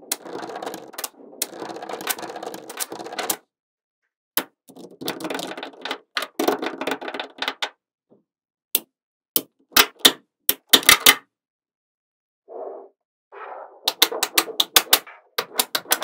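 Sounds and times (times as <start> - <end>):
metal balls clattering: 0.0 - 3.4, 4.7 - 7.7.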